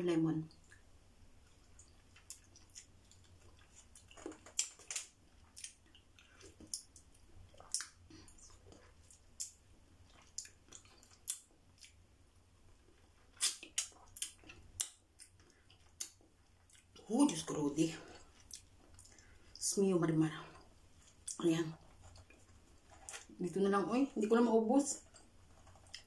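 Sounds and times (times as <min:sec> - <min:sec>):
mouth smacks and sucking clicks: 0:13.4 - 0:15.4.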